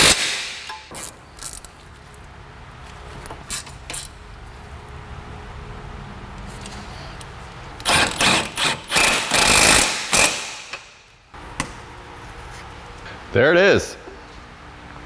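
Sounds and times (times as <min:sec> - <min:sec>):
impact wrench hammering: 0:07.8 - 0:11.0.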